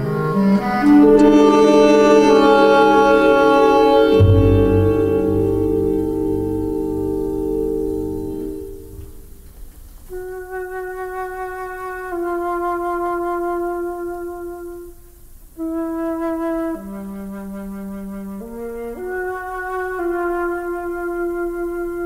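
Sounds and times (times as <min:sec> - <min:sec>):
flute-like woodwind melody: 0:00.0 - 0:09.4, 0:10.1 - 0:22.0
faint low rumble: 0:01.1 - 0:10.2.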